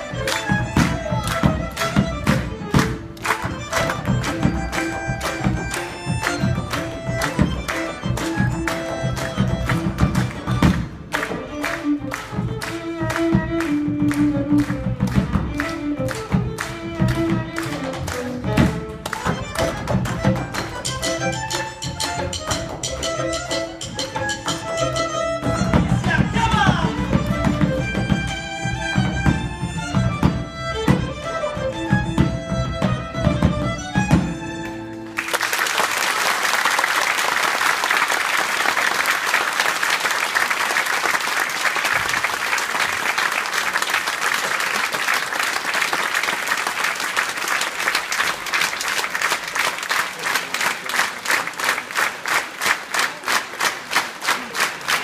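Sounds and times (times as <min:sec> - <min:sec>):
audience applauding: 0:00.0 - 0:20.8, 0:34.6 - 0:55.0
tango ensemble playing: 0:00.0 - 0:35.9
rhythmic clapping in unison: 0:00.0 - 0:55.0.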